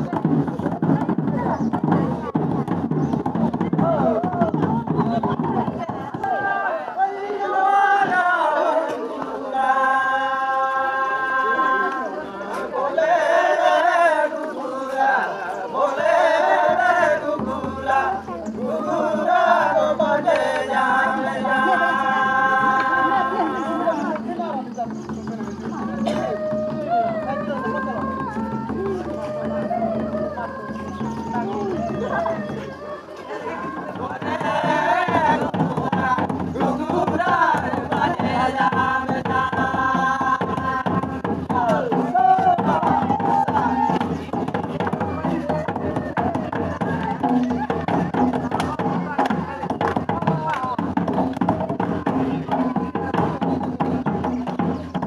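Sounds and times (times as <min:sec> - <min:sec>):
barrel drum beating: 0:00.0 - 0:06.7, 0:33.5 - 0:55.0
group of voices singing folk song: 0:00.0 - 0:55.0.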